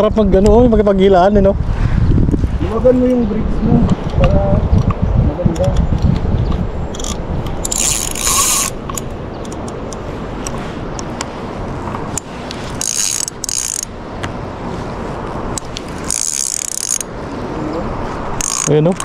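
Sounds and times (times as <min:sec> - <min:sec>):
fishing reel drag clicking: 0:06.9 - 0:10.0, 0:12.1 - 0:13.9, 0:15.6 - 0:17.1, 0:18.4 - 0:19.0.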